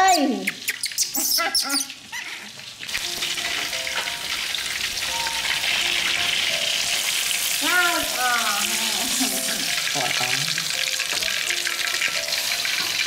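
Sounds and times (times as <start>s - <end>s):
meat sizzling in hot oil: 0.0s - 13.0s.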